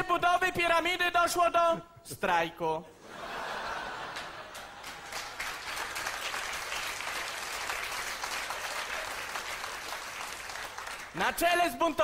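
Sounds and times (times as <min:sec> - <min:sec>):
audience applauding: 0:03.8 - 0:11.2.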